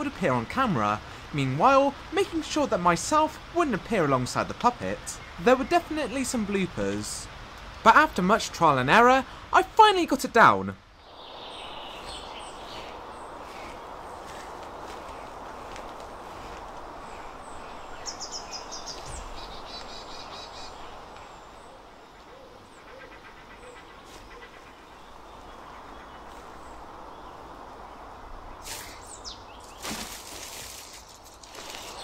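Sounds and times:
background hiss: 0:00.0 - 0:32.0
rustle: 0:00.0 - 0:32.0
songbirds calling: 0:00.0 - 0:32.0.

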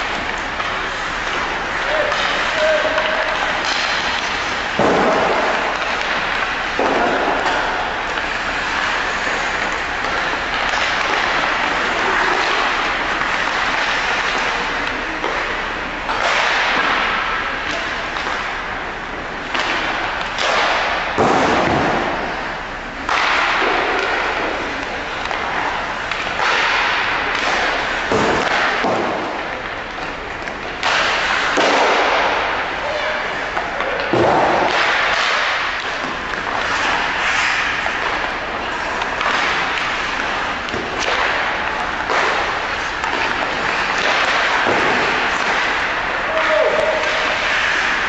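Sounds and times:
skates scraping on ice: 0:00.0 - 0:18.6, 0:19.4 - 0:48.0
echoing voices: 0:00.8 - 0:16.1, 0:32.2 - 0:34.6, 0:38.2 - 0:48.0.

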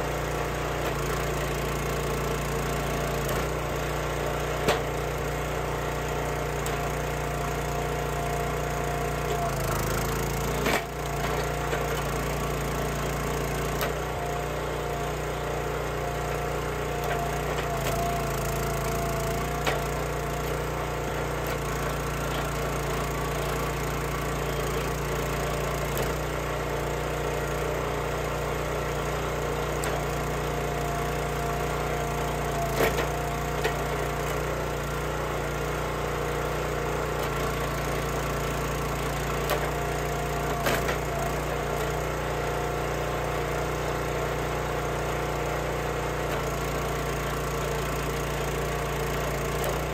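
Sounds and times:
small gas engine running: 0:00.0 - 0:49.9
wood splitting cracks: 0:06.3 - 0:15.1, 0:15.9 - 0:26.2, 0:29.6 - 0:35.1, 0:37.0 - 0:42.5.

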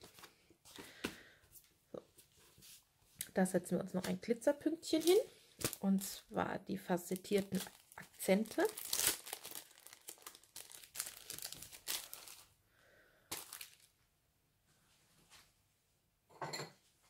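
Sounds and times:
plastic packaging crinkling: 0:04.9 - 0:06.2, 0:07.0 - 0:12.5, 0:13.3 - 0:14.0
sharp rustle of plastic: 0:07.4 - 0:12.5, 0:13.3 - 0:13.9.

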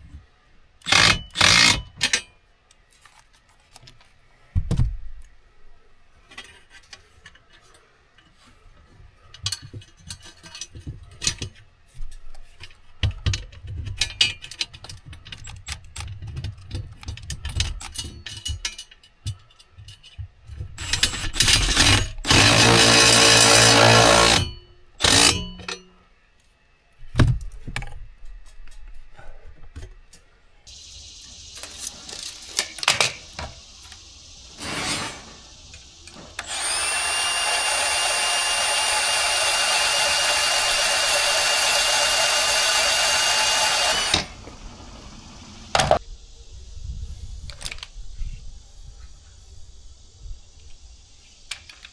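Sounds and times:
knocks and handling clatter: 0:06.2 - 0:22.0
power tool running: 0:20.8 - 0:25.4, 0:36.3 - 0:46.0.

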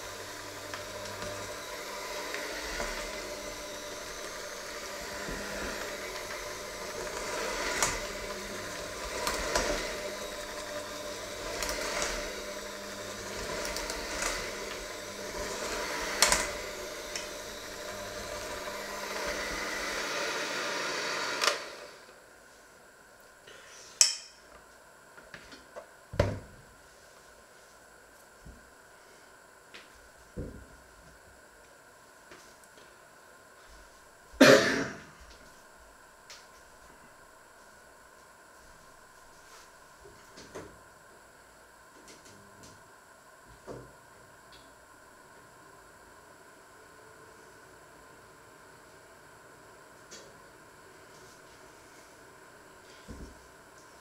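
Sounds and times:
electric hand mixer motor: 0:00.0 - 0:22.1.

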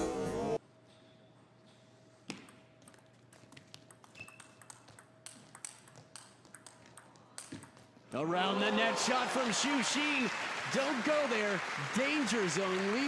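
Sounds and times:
music: 0:00.0 - 0:00.6
table tennis ball clicking: 0:02.3 - 0:07.9.

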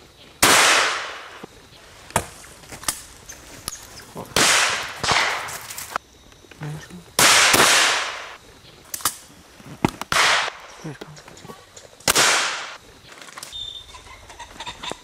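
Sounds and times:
distant gunshot cracks: 0:00.4 - 0:01.4, 0:04.4 - 0:05.8, 0:07.2 - 0:08.4, 0:10.1 - 0:10.7, 0:12.0 - 0:12.8
loud close shotgun shots: 0:00.4 - 0:01.4, 0:04.4 - 0:05.6, 0:07.2 - 0:08.4, 0:10.1 - 0:10.7, 0:12.0 - 0:12.8.

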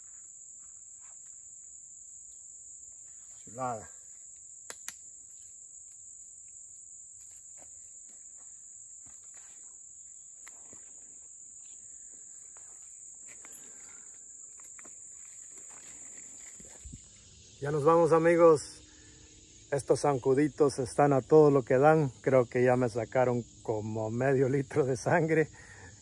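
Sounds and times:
insects chorus: 0:00.0 - 0:26.0
sharp clicks: 0:04.7 - 0:05.0.

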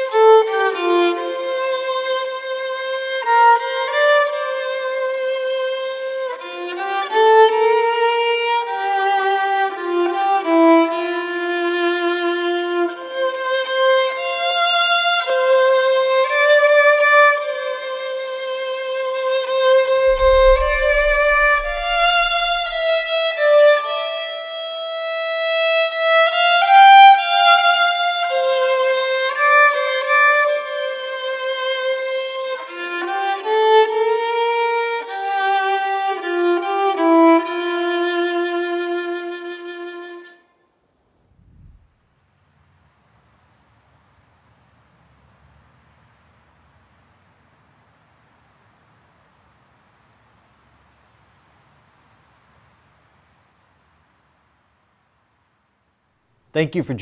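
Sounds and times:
violin playing slow melody: 0:00.0 - 0:40.4
brief deep rumble: 0:20.1 - 0:23.2, 0:41.3 - 0:41.9.

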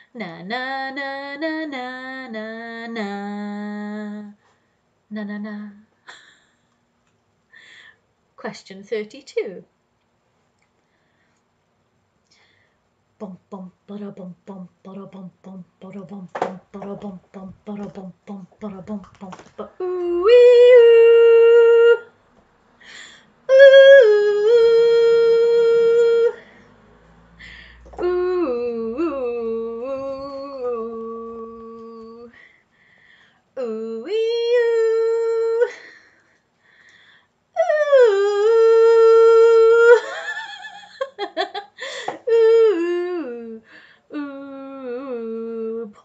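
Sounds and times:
woman humming and singing: 0:00.0 - 0:04.4, 0:05.1 - 0:06.3, 0:13.2 - 0:22.2, 0:22.8 - 0:26.5, 0:27.4 - 0:32.4, 0:33.6 - 0:36.0, 0:37.6 - 0:40.6, 0:41.8 - 0:46.0.

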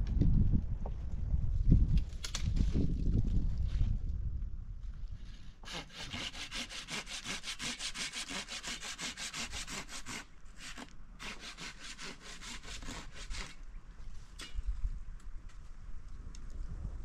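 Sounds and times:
hand saw cutting wood: 0:05.6 - 0:13.6.

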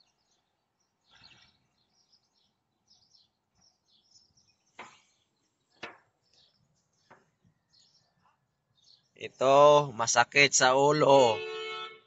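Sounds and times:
faint bird chirps: 0:00.0 - 0:09.4.

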